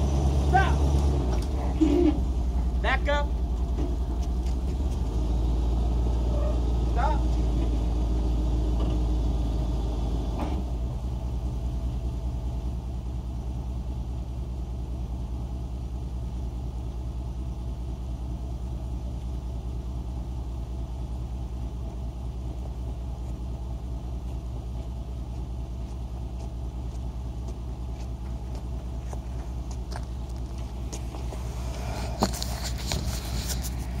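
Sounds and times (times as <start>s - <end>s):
engine idling: 0.0s - 34.0s
handling noise: 28.6s - 34.0s.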